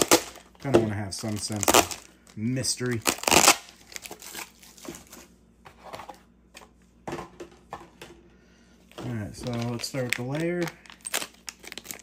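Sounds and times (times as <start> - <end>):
packaging rustling and crinkling: 1.2 - 5.3, 9.0 - 12.0.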